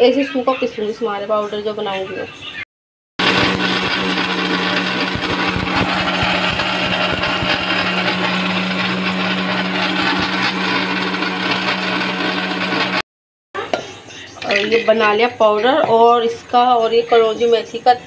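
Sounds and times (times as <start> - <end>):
mixer grinder whirring: 3.2 - 13.0.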